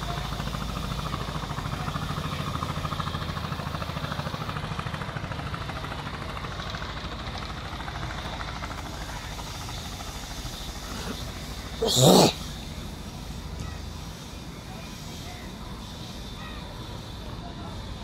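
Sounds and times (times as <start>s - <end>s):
engine running with pulsing beat: 0.0s - 11.8s.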